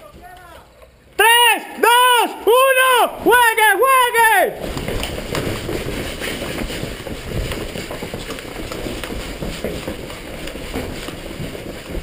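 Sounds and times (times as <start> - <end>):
hurried footsteps on concrete: 1.6 - 12.0
gear rustling and rattling: 4.6 - 12.0.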